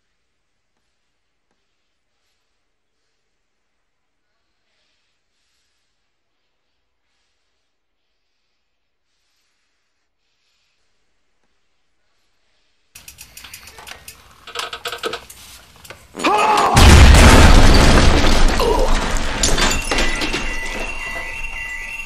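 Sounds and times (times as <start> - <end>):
loud blast with deep rumble: 16.8 - 19.2.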